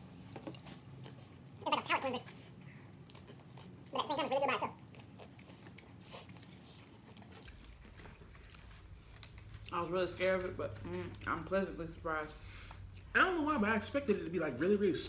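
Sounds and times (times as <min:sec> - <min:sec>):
chewing and slurping noodles: 0:00.1 - 0:09.8.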